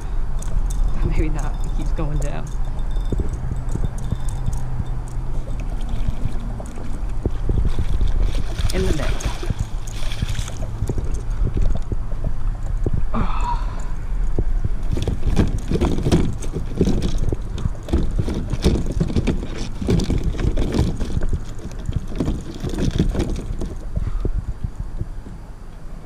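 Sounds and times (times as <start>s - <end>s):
rumbling handling noise: 0.0s - 26.0s
fish splashing in net: 5.6s - 11.5s.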